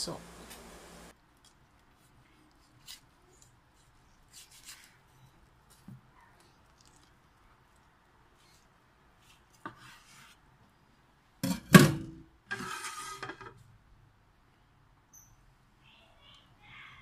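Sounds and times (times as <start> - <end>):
knife scraping cutting board: 9.2 - 10.4, 12.5 - 13.5.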